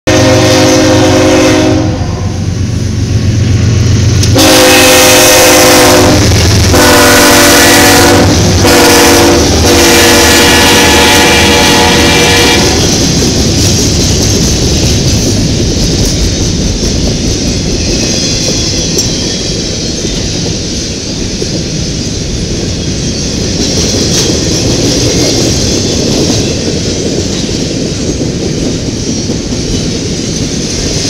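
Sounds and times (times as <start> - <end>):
locomotive air horn blasts: 0.1 - 2.5, 4.3 - 12.9
rail noise of passing cars: 0.1 - 31.0.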